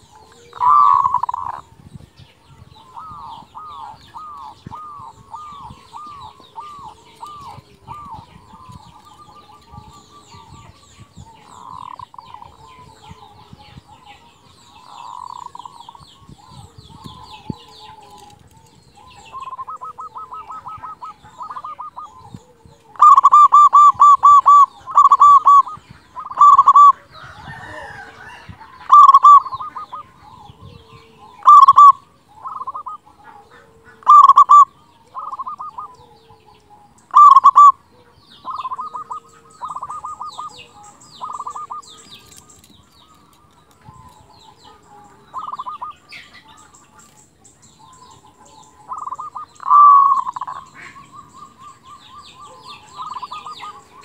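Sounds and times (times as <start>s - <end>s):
dove cooing: 0.0s - 54.0s
small birds chirping: 0.0s - 54.0s.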